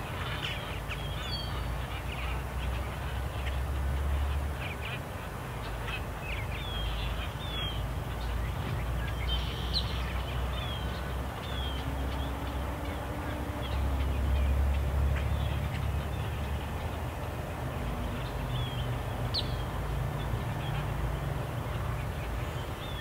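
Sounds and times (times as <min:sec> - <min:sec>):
birds chirping and calling: 0:00.0 - 0:23.0.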